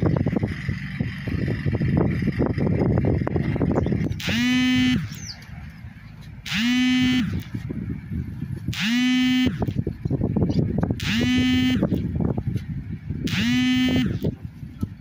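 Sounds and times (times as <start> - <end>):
engine rumble: 0.0 - 15.0
wind: 0.0 - 15.0
ship's horn blasts: 8.7 - 9.7, 11.0 - 11.9, 13.2 - 14.2.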